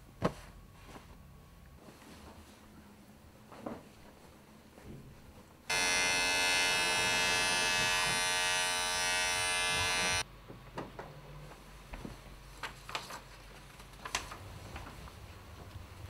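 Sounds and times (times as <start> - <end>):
loud electric buzz: 5.7 - 10.2.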